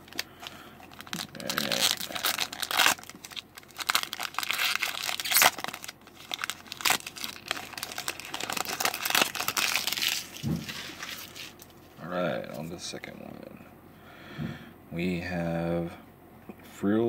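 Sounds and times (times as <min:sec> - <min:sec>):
foil wrapper tearing: 0:00.0 - 0:11.7
foil wrapper crinkling: 0:00.0 - 0:11.9.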